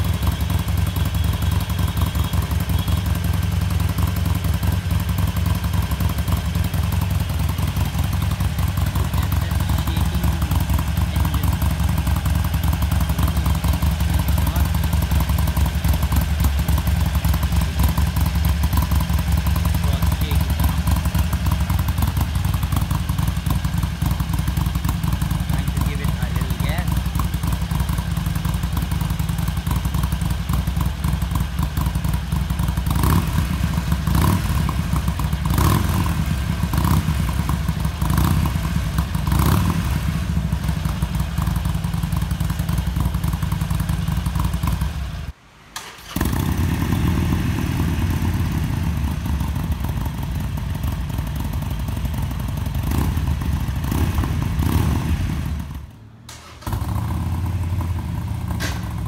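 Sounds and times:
motorcycle engine idling: 0.0s - 59.0s.

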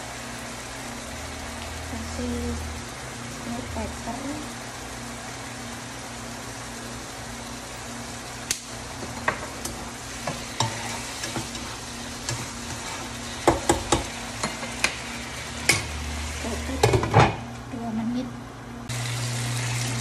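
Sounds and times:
food sizzling in a wok: 0.0s - 17.6s, 18.8s - 20.0s
utensil scraping a pan: 10.2s - 15.0s.

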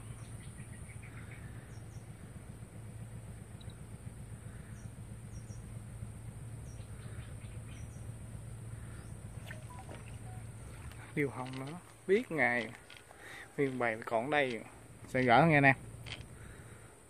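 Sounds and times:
faint bird chirps: 0.0s - 2.5s, 3.5s - 5.8s, 6.6s - 11.3s
insect drone: 0.0s - 17.0s
low steady hum: 0.0s - 17.0s.

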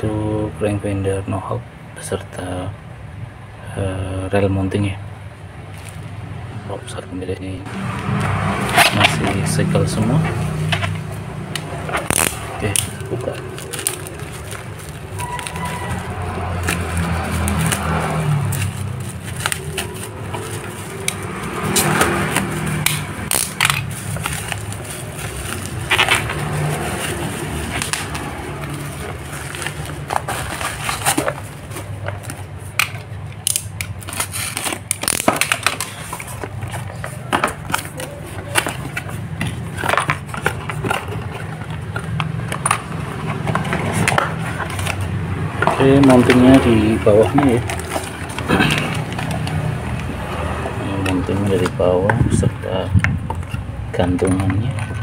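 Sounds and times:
plastic wrapping crinkling and tearing: 8.6s - 51.8s.

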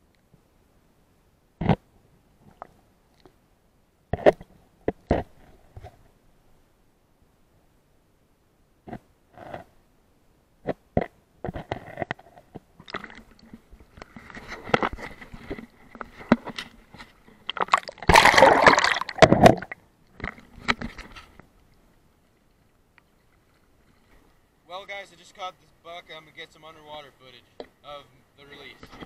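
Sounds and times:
water sloshing and splashing: 12.8s - 21.1s
loud splash: 17.6s - 19.8s.

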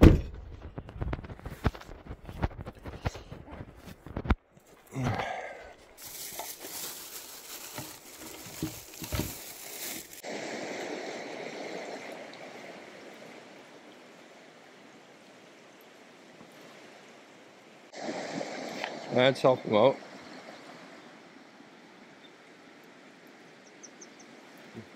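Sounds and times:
rough rustling noise: 0.3s - 4.9s, 5.9s - 10.3s
river water rushing: 5.4s - 24.9s.

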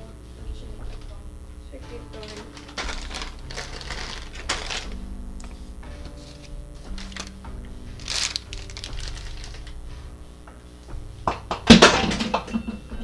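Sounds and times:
background music: 0.0s - 13.0s
plastic bag crinkling: 1.9s - 9.9s.

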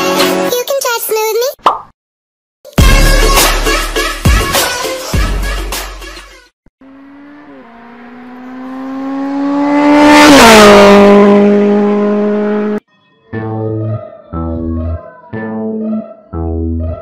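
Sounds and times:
racing car engine passing by: 6.8s - 12.8s.

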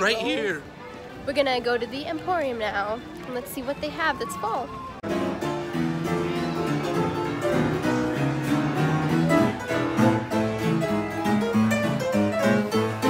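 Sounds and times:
upright piano tune: 5.0s - 13.0s.

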